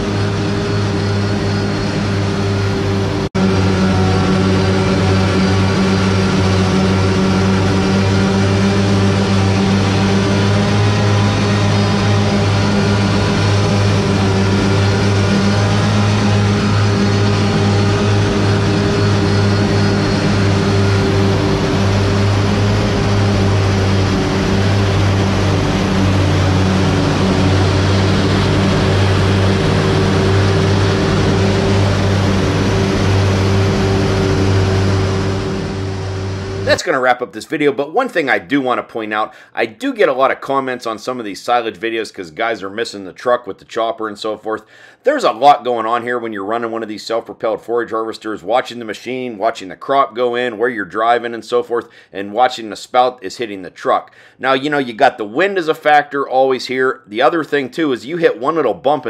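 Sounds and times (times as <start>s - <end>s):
mechanical hum: 0.0s - 36.8s.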